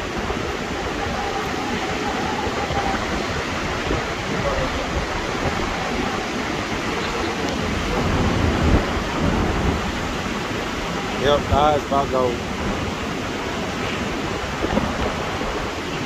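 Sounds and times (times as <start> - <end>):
low rumble of wind gust: 0.0 - 16.0
wind and rain buffeting microphone: 0.0 - 16.0.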